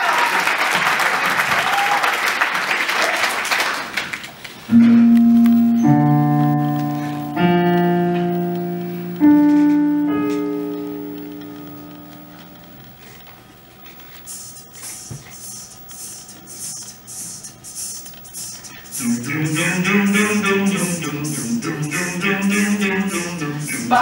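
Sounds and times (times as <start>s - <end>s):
applause: 0.0s - 4.5s
piano chords: 4.7s - 13.2s, 19.0s - 24.0s.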